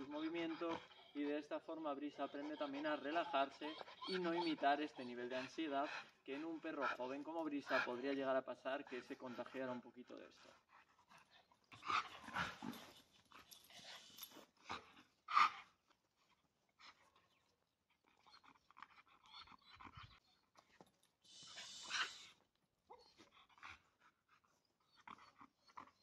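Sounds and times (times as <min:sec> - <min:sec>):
dog panting: 0:00.0 - 0:26.0
rustling hiss: 0:21.2 - 0:22.3.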